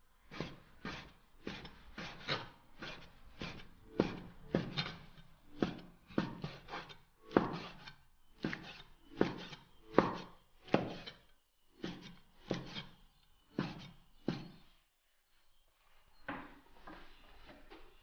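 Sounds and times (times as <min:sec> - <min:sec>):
cleaver chopping on wooden board: 0:00.3 - 0:11.2, 0:11.8 - 0:14.7.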